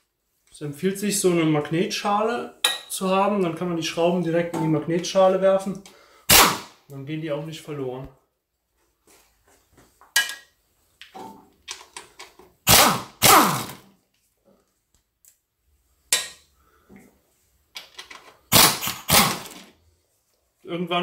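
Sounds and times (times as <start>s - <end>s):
impact wrench bursts: 6.3s - 6.8s, 12.6s - 13.8s, 18.5s - 19.6s.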